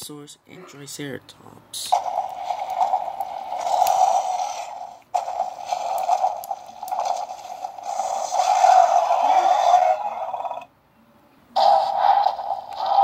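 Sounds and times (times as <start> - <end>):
tinny electronic dinosaur roar: 7.9 - 10.7.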